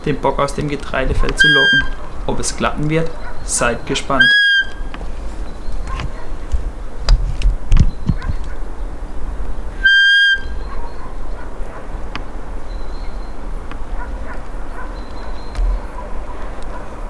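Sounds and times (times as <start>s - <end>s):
high deer call whistle: 1.4s - 2.0s, 4.1s - 4.9s, 9.7s - 10.9s.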